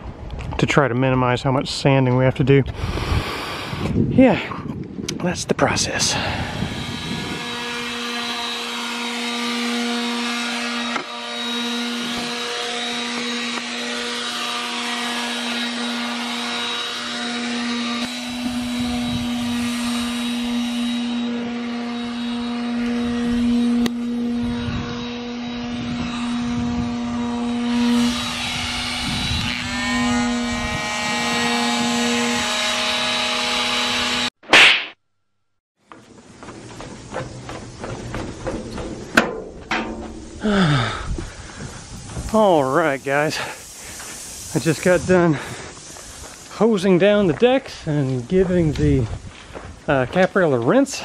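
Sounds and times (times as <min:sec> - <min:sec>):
electric sander sanding: 0:06.0 - 0:34.4, 0:40.2 - 0:48.8.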